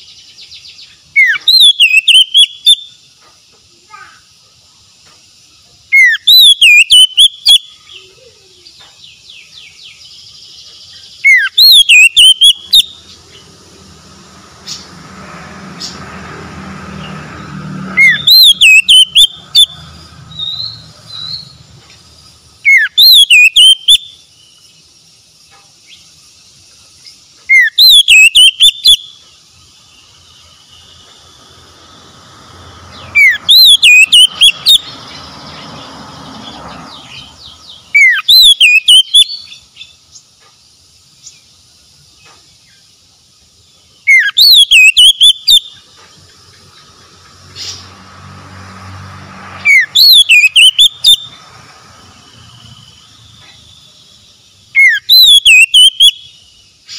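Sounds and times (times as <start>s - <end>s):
bird singing warbling whistle: 0.0s - 3.0s, 5.9s - 8.7s, 9.3s - 13.5s, 17.0s - 21.6s, 22.6s - 24.6s, 27.5s - 29.2s, 32.9s - 35.6s, 36.9s - 40.0s, 44.0s - 45.9s, 49.6s - 51.4s, 54.7s - 56.9s.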